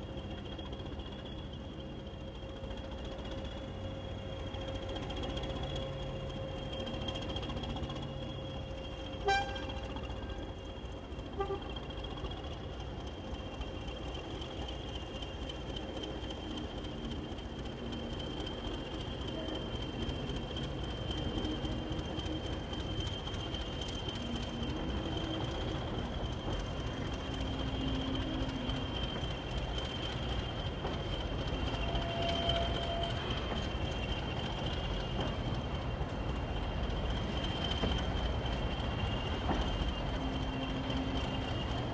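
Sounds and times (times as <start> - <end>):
locomotive rumbling past: 3.4 - 41.9
diesel locomotive horn toots: 9.1 - 10.6, 11.2 - 11.9, 31.8 - 33.5
wagons rolling on track: 11.8 - 41.9.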